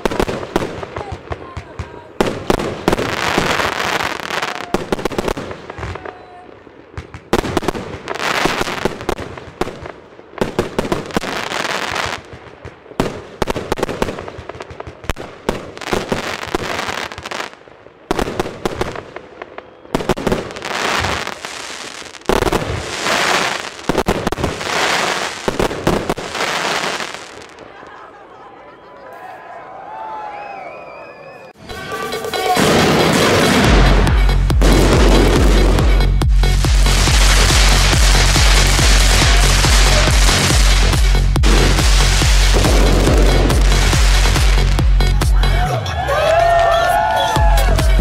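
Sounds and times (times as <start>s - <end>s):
crackling aerial bursts: 18.8s - 27.6s, 32.1s - 45.6s.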